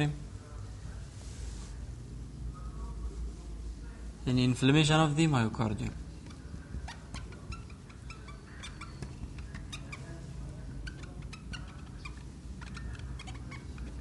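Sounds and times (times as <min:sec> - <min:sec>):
low steady hum: 0:00.0 - 0:14.0
marker squeaking on whiteboard: 0:06.0 - 0:14.0.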